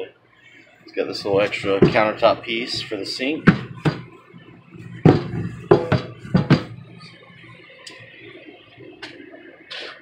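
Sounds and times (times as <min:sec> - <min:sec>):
sharp knocks on steel sink: 0:03.5 - 0:04.1, 0:05.1 - 0:06.7.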